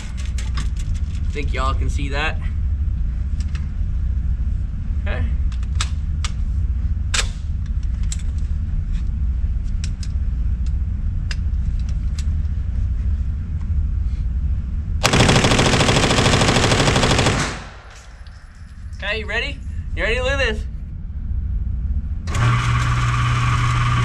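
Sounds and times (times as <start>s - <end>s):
low steady rumble: 0.0s - 24.0s
submachine gun full-auto burst: 15.0s - 17.8s.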